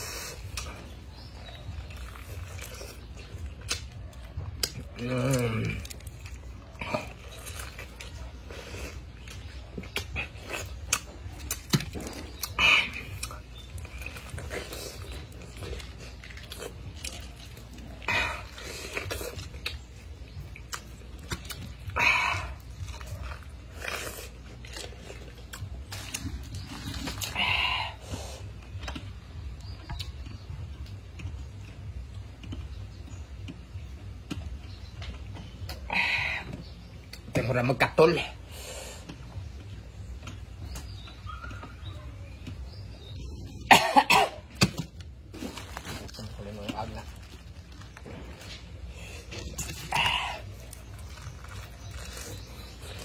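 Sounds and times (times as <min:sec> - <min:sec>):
man chewing pineapple: 0:00.0 - 0:53.0
man coughing: 0:43.7 - 0:44.4.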